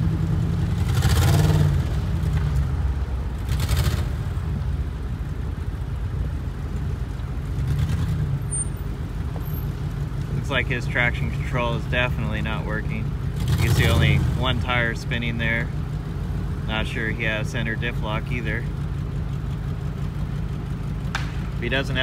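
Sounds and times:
car engine running under load: 0.0s - 22.0s.

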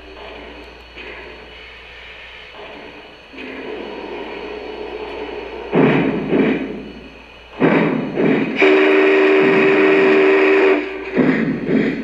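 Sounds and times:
heavy steam chuffs: 0.0s - 12.0s
two-tone steam whistle: 7.6s - 12.0s.

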